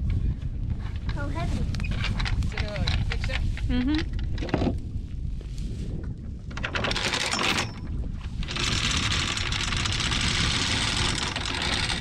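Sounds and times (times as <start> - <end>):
anchor chain rattling: 6.5 - 12.0.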